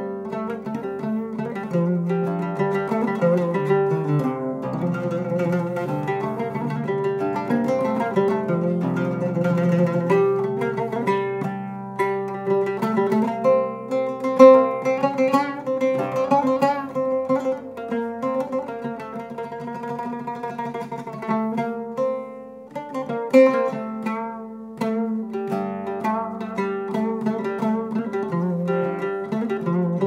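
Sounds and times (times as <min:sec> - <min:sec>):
oud melody: 0:00.0 - 0:30.0.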